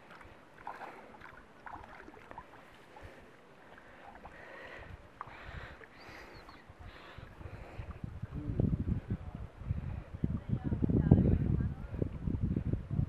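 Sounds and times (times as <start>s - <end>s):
lake water lapping: 0.0s - 8.6s
wind rumble on microphone: 4.7s - 13.0s.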